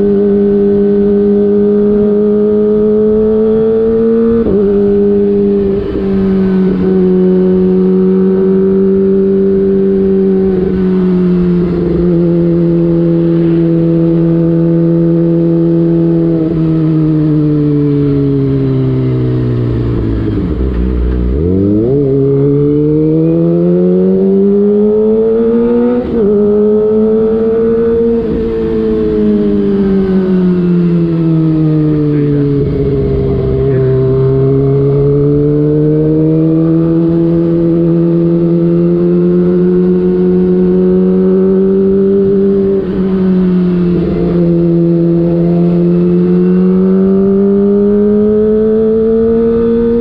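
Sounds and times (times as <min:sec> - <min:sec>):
motorcycle engine running: 0:00.0 - 0:50.0.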